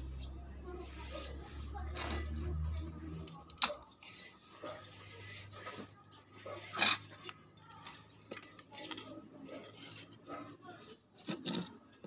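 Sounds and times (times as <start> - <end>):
metallic rubbing and clinks: 0.1 - 12.0.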